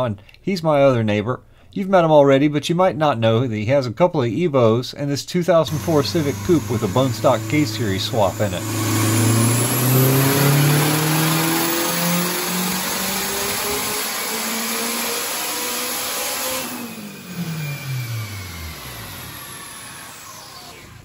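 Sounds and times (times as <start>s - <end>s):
car engine revving at full throttle: 5.7s - 20.6s.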